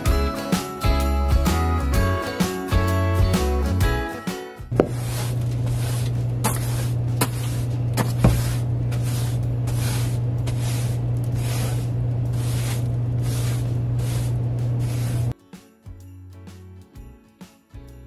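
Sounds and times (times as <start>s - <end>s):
brush knocking against wood: 4.7s - 11.8s
steady low hum: 4.7s - 15.3s
brush sweeping wooden shelf: 4.7s - 15.4s.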